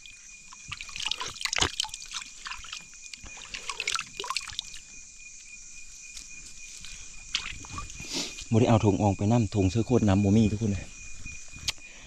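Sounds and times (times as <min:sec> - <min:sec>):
water dripping and sloshing: 0:00.0 - 0:05.1, 0:06.7 - 0:08.0.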